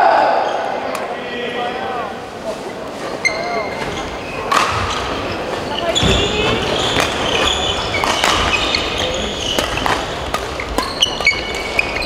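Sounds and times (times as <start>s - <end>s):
sports hall noise: 0.0s - 12.0s
shoes squeaking on court floor: 2.5s - 12.0s
racket striking shuttlecock: 7.0s - 12.0s.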